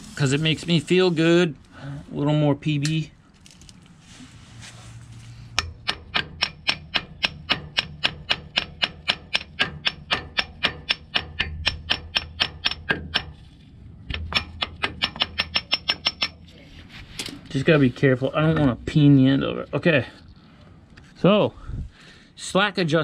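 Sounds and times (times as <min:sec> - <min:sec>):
hammer striking steel: 0:05.5 - 0:13.5, 0:14.1 - 0:16.5.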